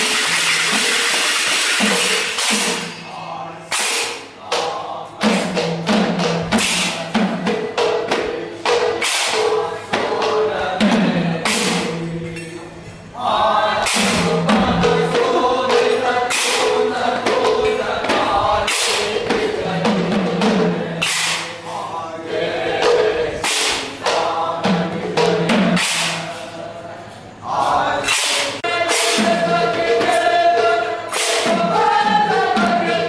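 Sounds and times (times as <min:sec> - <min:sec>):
barrel drums beating: 0:00.0 - 0:12.5, 0:13.8 - 0:21.4, 0:28.1 - 0:33.0
chorus singing: 0:00.0 - 0:33.0.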